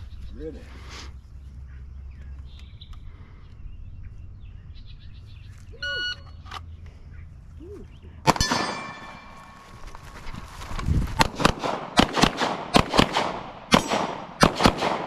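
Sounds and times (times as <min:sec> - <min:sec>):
steady low rumble: 0:00.0 - 0:15.0
sharp gunshot with ringing: 0:08.3 - 0:09.6, 0:11.2 - 0:15.0.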